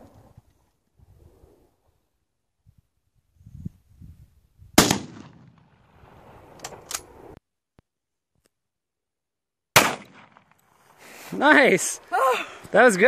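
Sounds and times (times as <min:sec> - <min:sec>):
pistol shots: 0:04.8 - 0:05.8, 0:09.8 - 0:10.5.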